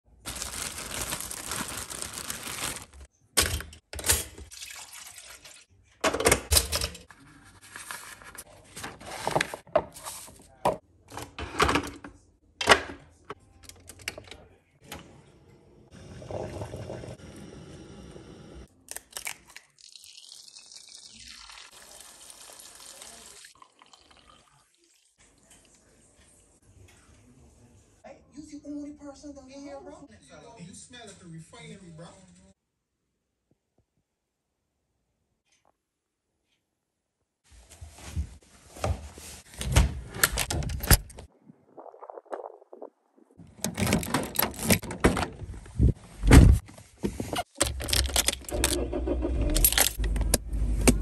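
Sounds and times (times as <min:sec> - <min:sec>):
plastic bag crinkling: 0:00.1 - 0:03.1
coffee pouring into a mug: 0:04.5 - 0:05.6, 0:16.0 - 0:18.1, 0:19.5 - 0:26.0.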